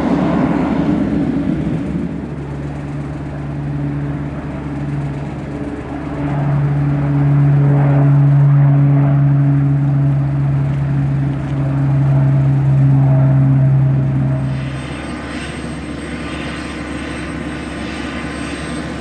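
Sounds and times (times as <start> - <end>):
helicopter turbine hum: 0.0 - 19.0.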